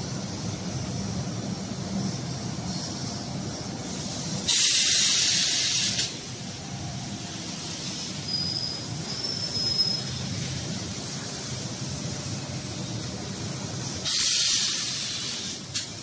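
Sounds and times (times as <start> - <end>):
factory machinery humming: 0.0 - 16.0
loud hiss of released air: 3.8 - 11.4, 13.8 - 16.0
thin high squeal: 8.2 - 10.2.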